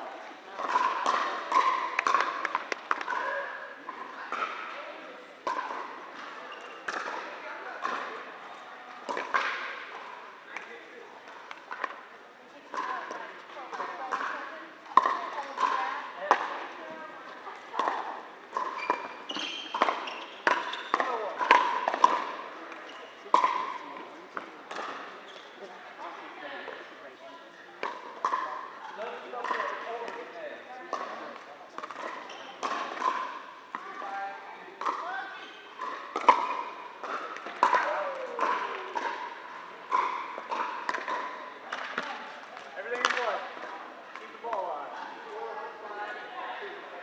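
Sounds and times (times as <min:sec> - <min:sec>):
paddles hitting plastic ball: 0:00.6 - 0:03.3, 0:05.4 - 0:08.1, 0:11.3 - 0:12.0, 0:12.7 - 0:23.7, 0:30.9 - 0:34.1, 0:35.8 - 0:45.1
paddles striking plastic ball: 0:39.9 - 0:44.6.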